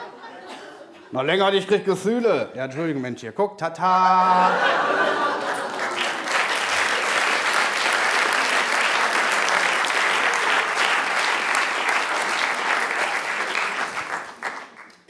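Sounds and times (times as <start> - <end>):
audience applauding: 4.8 - 15.0.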